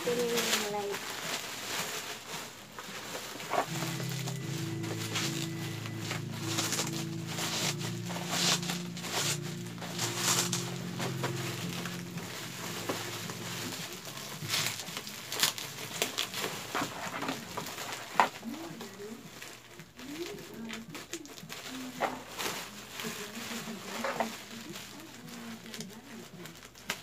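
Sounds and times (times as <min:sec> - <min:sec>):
plastic packaging crinkling: 0:00.0 - 0:27.0
background music: 0:03.7 - 0:15.8.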